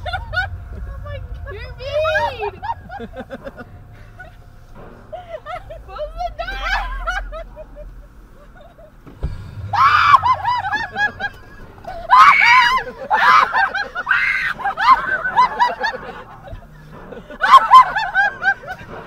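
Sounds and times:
shrieking laughter: 0.0 - 4.4, 5.1 - 9.0, 9.6 - 19.0
high-pitched screaming: 9.6 - 15.0.

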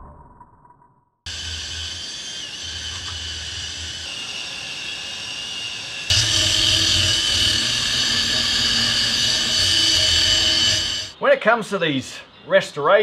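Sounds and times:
wire brush grinder scouring metal: 1.3 - 11.2.

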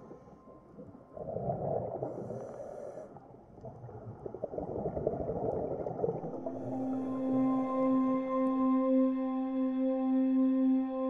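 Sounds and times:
underwater bubbling and rumbling: 0.0 - 8.8.

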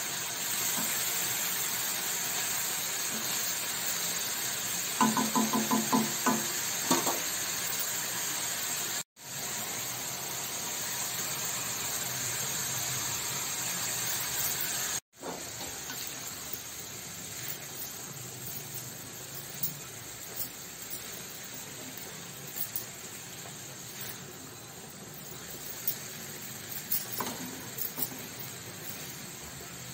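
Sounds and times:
vegetables sizzling in oil: 0.0 - 29.9
spatula knocking on pan: 5.0 - 7.3.

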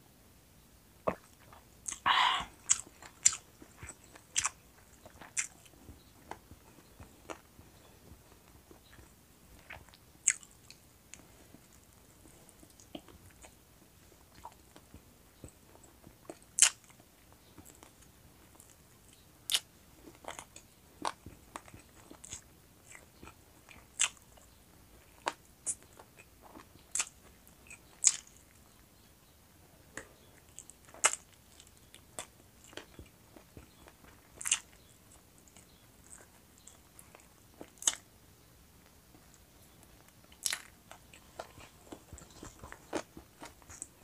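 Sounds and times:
chewing and biting chicken: 1.1 - 7.9, 8.5 - 13.6, 14.2 - 28.6, 30.0 - 38.1, 39.7 - 44.0
sharp mouth clicks: 1.9 - 3.4.

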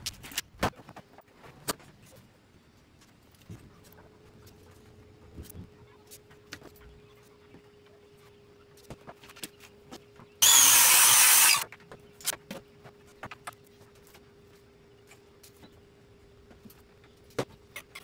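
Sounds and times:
circular saw running: 10.4 - 11.6.

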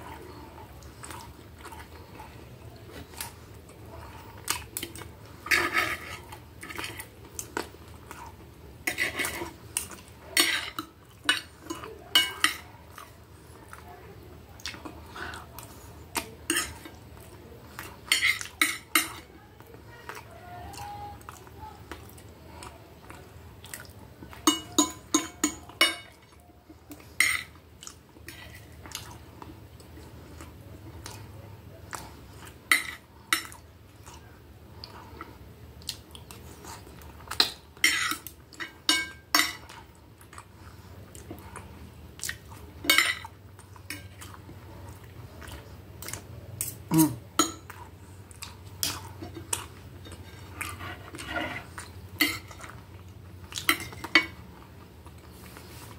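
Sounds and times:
chewing: 0.0 - 55.9
cutlery clinking on a plate: 10.4 - 12.7, 24.4 - 26.2, 32.7 - 33.6, 37.3 - 39.7, 42.8 - 43.3.

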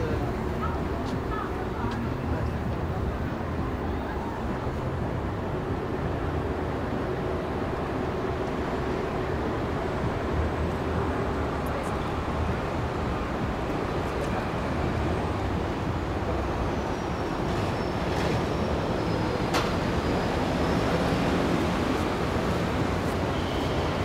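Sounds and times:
low city rumble: 0.0 - 24.0.

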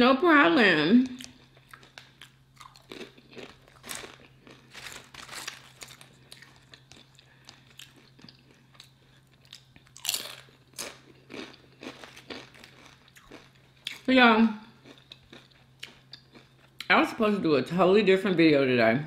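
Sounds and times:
crunching tortilla chips: 1.2 - 14.1, 14.8 - 16.8.

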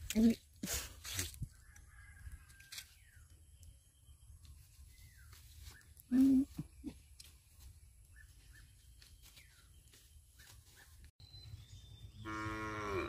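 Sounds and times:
faint bird chirps: 1.5 - 12.5
cow mooing: 12.2 - 13.0.

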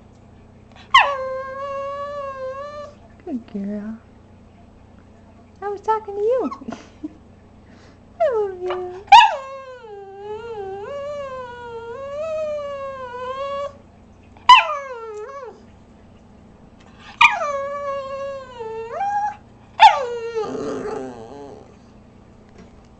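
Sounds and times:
dog yipping and howling: 0.8 - 3.0, 9.1 - 13.8, 14.5 - 15.6, 17.2 - 21.7.

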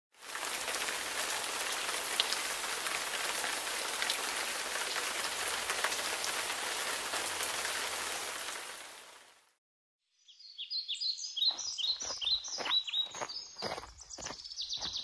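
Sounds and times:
steady rain pattering: 0.2 - 9.6.

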